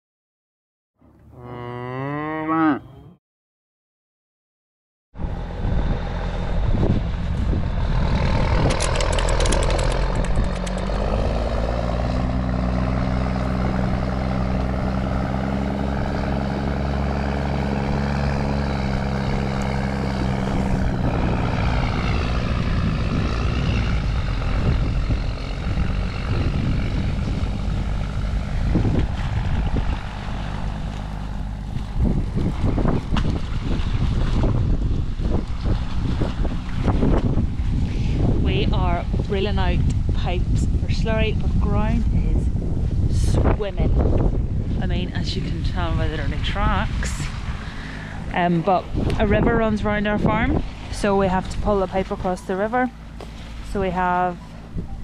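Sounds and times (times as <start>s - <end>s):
cow mooing: 1.2s - 3.2s
engine running: 5.2s - 55.0s
wind rumbling on microphone: 5.2s - 55.0s.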